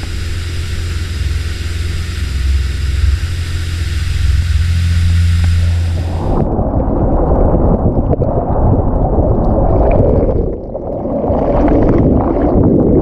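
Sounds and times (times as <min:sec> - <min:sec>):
muffled underwater water rush: 0:00.0 - 0:13.0.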